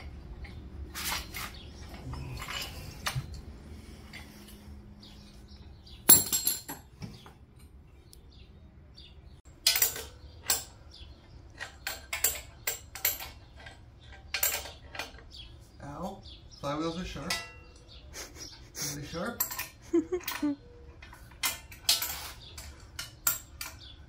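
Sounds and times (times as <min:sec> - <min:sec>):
metal tools clinking: 0:00.4 - 0:03.5, 0:06.1 - 0:06.9, 0:09.5 - 0:15.4, 0:17.1 - 0:17.9, 0:19.2 - 0:24.0.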